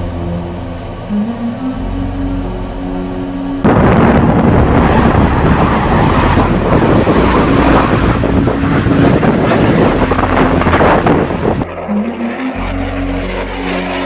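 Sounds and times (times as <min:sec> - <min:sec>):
jet fighter flying past: 0:03.6 - 0:14.0.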